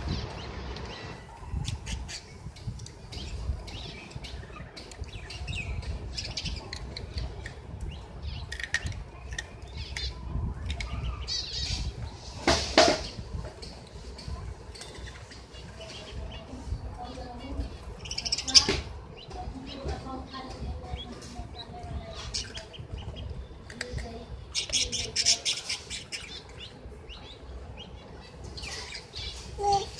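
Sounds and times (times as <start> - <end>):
ducklings peeping: 0.0 - 12.2, 17.4 - 23.7, 24.5 - 29.9.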